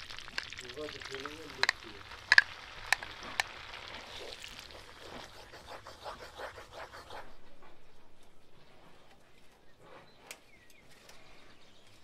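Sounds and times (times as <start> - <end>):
paste sizzling in butter: 0.0 - 6.8
wooden spoon stirring: 0.0 - 7.3
spoon tapping: 1.6 - 3.5.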